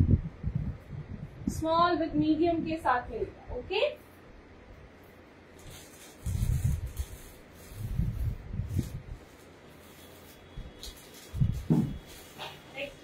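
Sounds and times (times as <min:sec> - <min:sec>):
plastic packaging rustling: 0:05.0 - 0:13.0.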